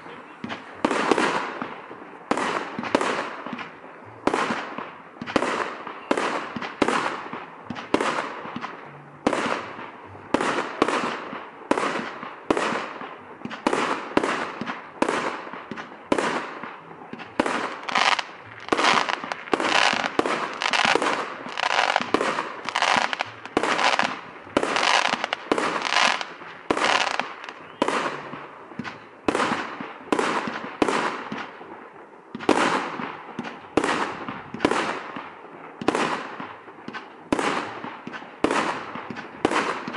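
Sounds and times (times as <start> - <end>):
fireworks bursting: 0.0 - 39.9.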